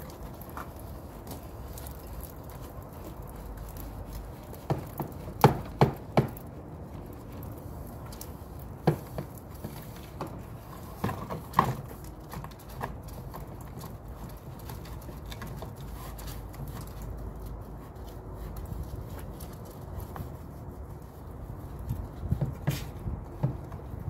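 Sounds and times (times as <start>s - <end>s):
brush pole knocking on plastic gutter: 4.5s - 6.4s, 8.8s - 12.9s.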